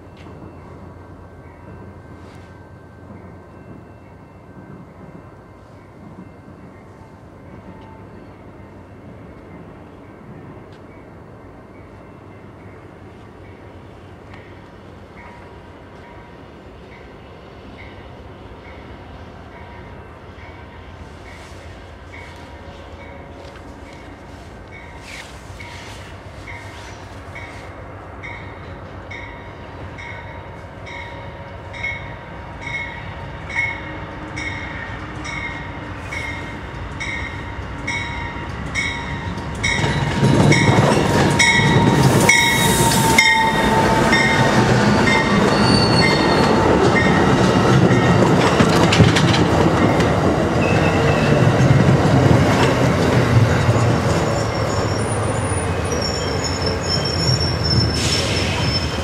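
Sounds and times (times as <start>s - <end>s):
railroad crossing bell ringing: 0.0s - 48.4s
train wheels rumbling on rails: 11.9s - 59.0s
wheel squeal: 42.2s - 46.6s, 53.8s - 59.0s.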